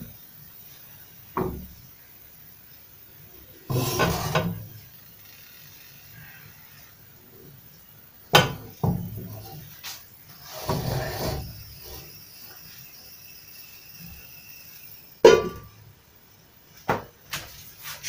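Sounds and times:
pan scraping clatter: 3.7 - 4.7, 10.4 - 12.1
frying pan knocking on metal grate: 15.2 - 15.7.

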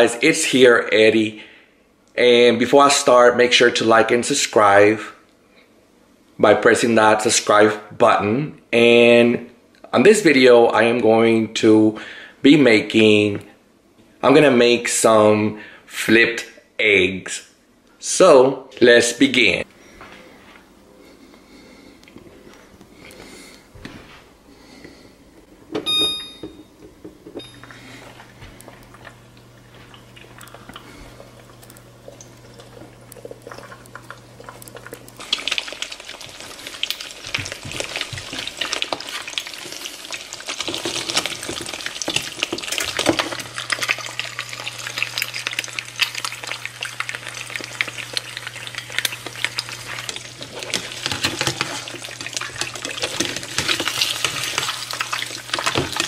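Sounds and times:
low steady hum: 0.0 - 56.0
eggs sizzling in frying pan: 28.7 - 56.0.

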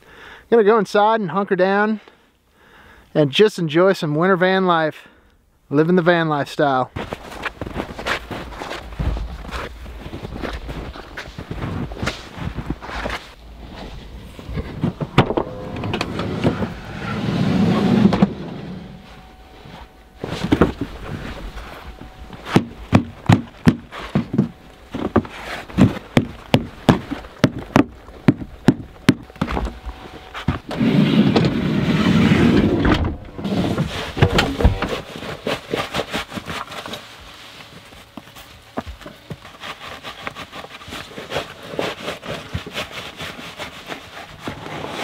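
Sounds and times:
sliding van door rolling: 12.8 - 23.0, 29.3 - 35.0
door closing thud: 13.8 - 18.8, 32.6 - 35.0
boots knocking on door step: 22.6 - 29.7.

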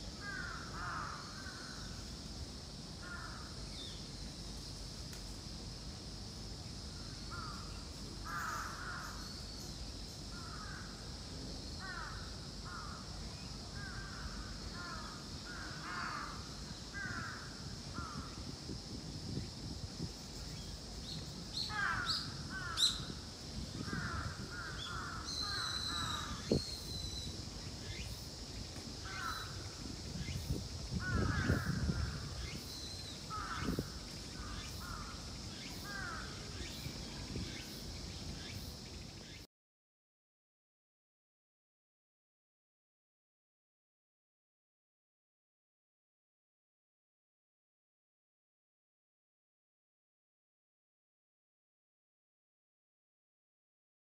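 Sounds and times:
crows cawing: 0.2 - 1.8, 3.0 - 3.5, 7.3 - 9.2, 13.8 - 18.3, 21.7 - 23.0, 23.8 - 26.4, 29.0 - 29.6, 31.0 - 32.3, 33.3 - 35.2, 35.9 - 36.3.

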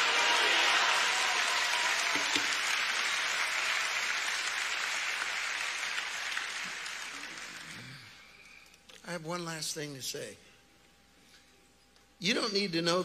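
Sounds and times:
congregation applauding: 0.0 - 8.6.

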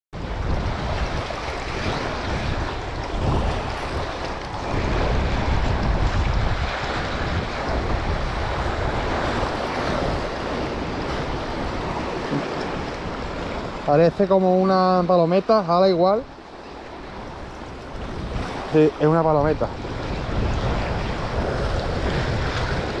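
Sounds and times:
sea surf washing against rocks: 0.2 - 23.0
wind buffeting microphone: 0.2 - 23.0.

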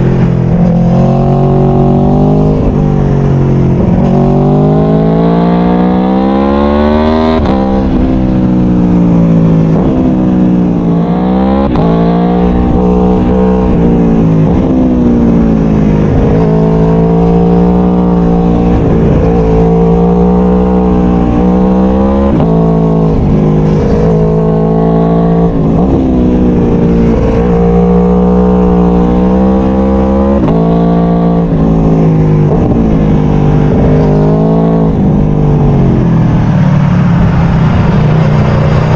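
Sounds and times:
motorcycle engine revving: 0.0 - 38.9.

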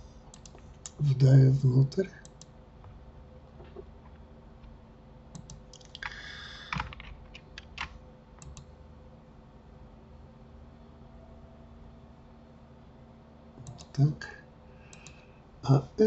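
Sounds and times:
faint steady hum: 0.0 - 16.0
mouse clicks: 5.4 - 6.2, 8.4 - 8.7, 14.9 - 15.2
keyboard keystrokes: 5.4 - 8.7.

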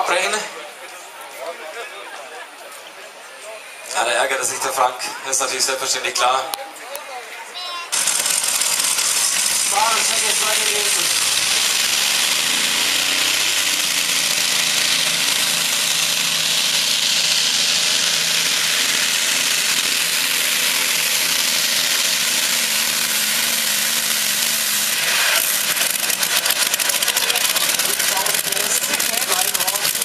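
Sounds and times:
tractor engine at full load: 7.9 - 30.0.

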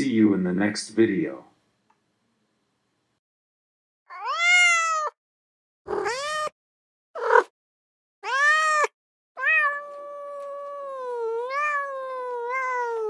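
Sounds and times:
cat meowing: 4.1 - 5.2, 5.9 - 6.6, 8.2 - 13.0.

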